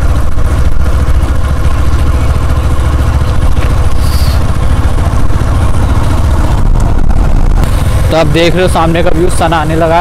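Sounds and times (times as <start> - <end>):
motorcycle engine running: 0.0 - 10.0
wind rumble on microphone: 6.4 - 7.8.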